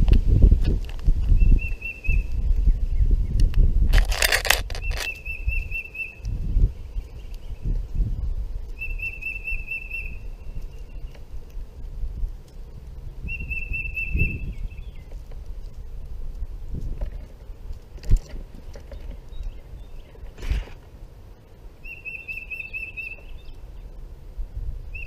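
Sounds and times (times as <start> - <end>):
wind rumble on microphone: 0.0 - 21.8, 22.4 - 25.0
wingbeats flutter: 0.0 - 24.2
songbird trilling: 1.3 - 3.4, 4.7 - 7.7, 8.8 - 11.2, 13.0 - 15.2, 21.8 - 23.9.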